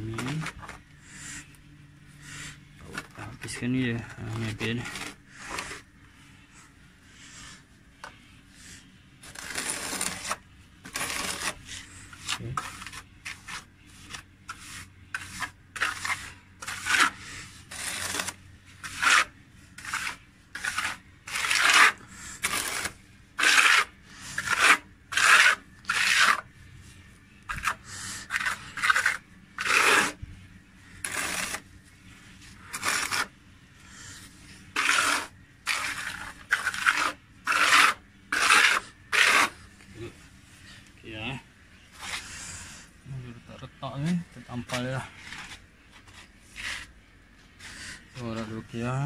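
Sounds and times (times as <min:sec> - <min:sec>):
trowel scraping plaster: 0:02.2 - 0:05.9, 0:08.7 - 0:26.5, 0:27.5 - 0:30.2, 0:30.9 - 0:31.7, 0:32.6 - 0:39.6, 0:44.7 - 0:46.9.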